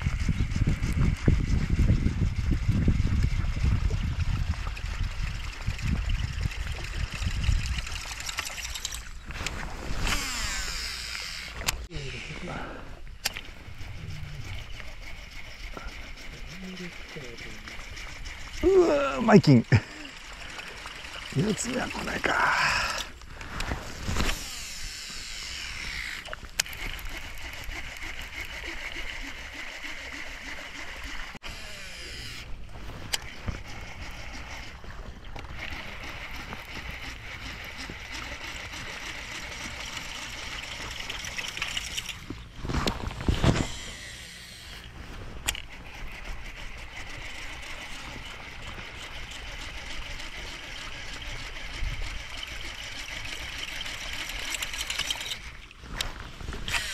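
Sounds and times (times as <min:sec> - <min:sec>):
fishing reel winding: 0:04.8 - 0:09.2, 0:10.0 - 0:11.8, 0:13.2 - 0:23.2, 0:24.2 - 0:32.5, 0:35.4 - 0:42.2, 0:43.4 - 0:55.7, 0:56.6 - 0:56.9.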